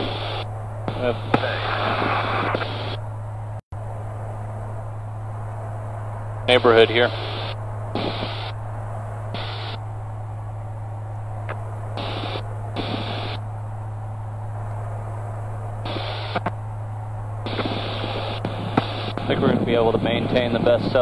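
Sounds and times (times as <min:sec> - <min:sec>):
intercom hiss bursts: 0:00.0 - 0:03.0, 0:06.5 - 0:08.6, 0:09.3 - 0:09.8, 0:12.0 - 0:13.4, 0:15.8 - 0:16.5, 0:17.4 - 0:21.0
light aircraft engine droning: 0:00.0 - 0:21.0.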